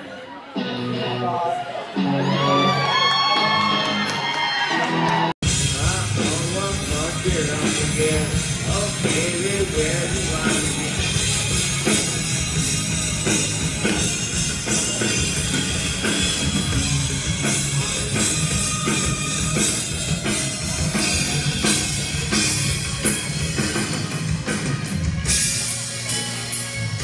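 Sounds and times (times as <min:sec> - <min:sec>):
distorted electric guitars: 0:00.0 - 0:27.0
bass guitar: 0:00.5 - 0:27.0
drum kit beat: 0:05.4 - 0:27.0.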